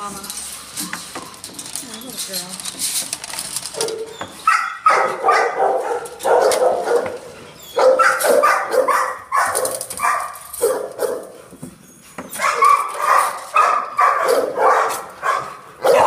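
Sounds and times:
dogs barking: 3.7s - 11.4s, 12.3s - 16.0s.

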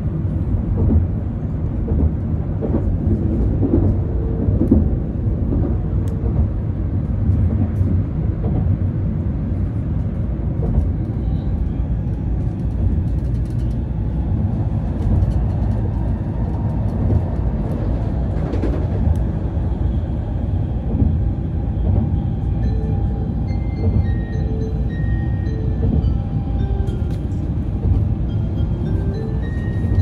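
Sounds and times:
train cabin rumble: 0.0s - 30.0s
melody of clear notes: 24.1s - 30.0s.

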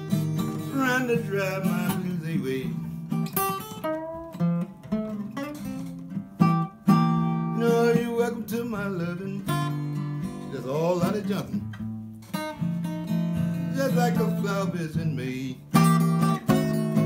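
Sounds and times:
acoustic blues guitar: 0.0s - 17.0s.

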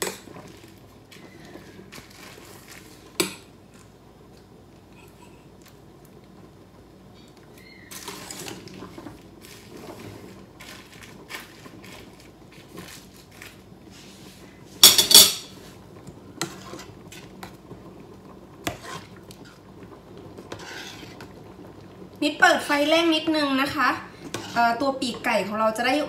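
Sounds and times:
metal utensils clanking on pots: 14.8s - 15.6s.

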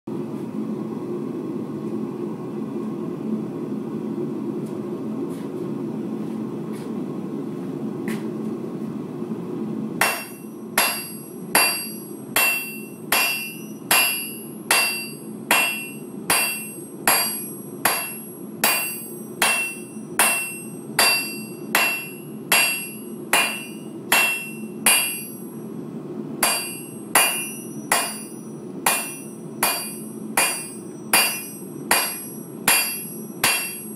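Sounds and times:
hammer ringing on anvil: 10.0s - 25.4s, 26.4s - 33.9s.

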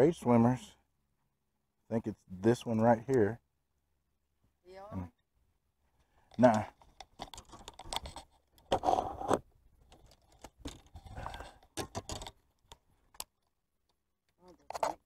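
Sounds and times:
fishing gear clicks and knocks: 6.2s - 15.0s.

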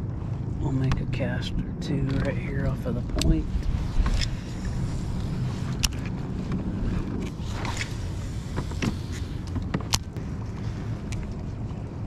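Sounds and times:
wind rumble on microphone: 0.0s - 12.0s
fishing rod and reel clicks: 3.2s - 6.2s.

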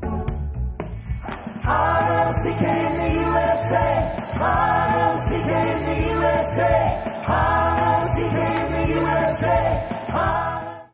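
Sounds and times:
bass line: 0.0s - 10.7s
pop-rock music: 0.0s - 10.8s
drums: 0.0s - 10.9s
group of voices singing: 1.4s - 10.9s.

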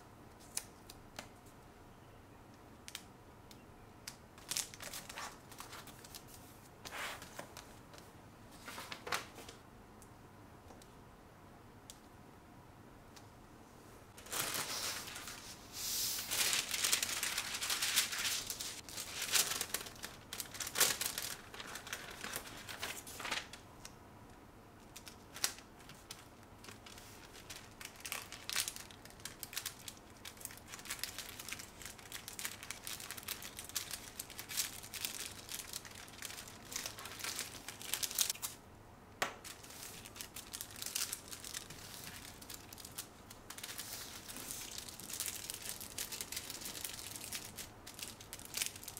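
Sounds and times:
wrapping paper crinkling: 4.1s - 8.0s, 14.2s - 23.6s, 24.8s - 38.6s, 39.4s - 48.9s.

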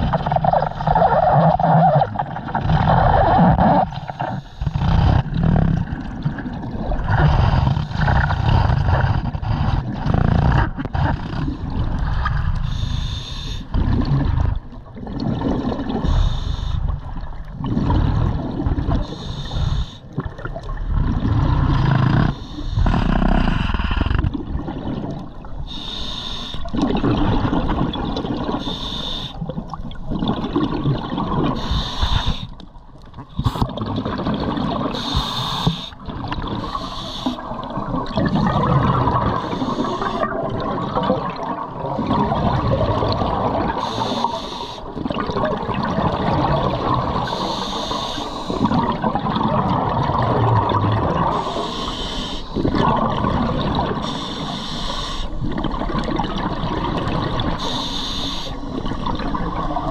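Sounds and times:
exhaled bubbles rushing: 0.0s - 12.8s, 13.7s - 25.7s, 26.6s - 28.7s, 29.4s - 31.8s, 33.0s - 57.8s, 58.6s - 59.9s
regulator hissing inhalations: 12.7s - 13.7s, 25.7s - 26.6s, 28.6s - 29.4s, 31.6s - 32.5s, 35.0s - 36.0s, 36.7s - 37.4s, 43.8s - 44.9s, 47.3s - 48.6s, 51.3s - 52.6s, 54.0s - 55.4s, 57.6s - 58.7s.

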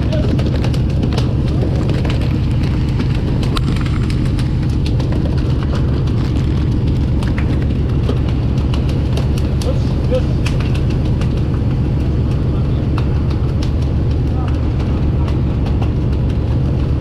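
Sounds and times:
boat engine rumbling: 0.0s - 17.0s
sharp taps and knocks: 0.0s - 17.0s
wind: 0.0s - 17.0s.

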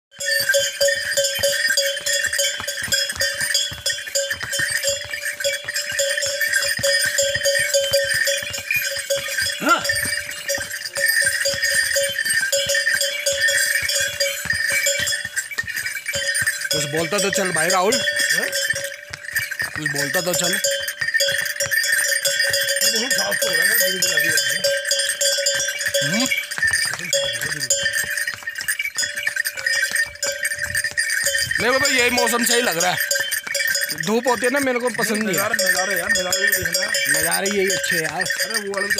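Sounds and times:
harness bells jingling: 0.1s - 38.9s
hoof steps on stone: 0.1s - 38.9s
man's voice: 9.6s - 10.0s, 16.7s - 18.6s, 19.7s - 20.6s, 22.8s - 24.7s, 26.0s - 26.4s, 27.0s - 27.8s, 31.6s - 33.1s, 33.9s - 38.9s.

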